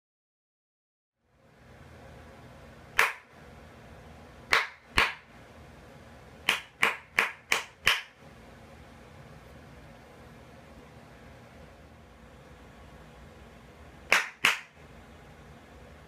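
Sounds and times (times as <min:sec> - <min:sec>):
hand claps: 0:03.0 - 0:03.3, 0:04.5 - 0:05.3, 0:06.5 - 0:08.2, 0:14.1 - 0:14.8
faint steady hiss: 0:08.2 - 0:16.0.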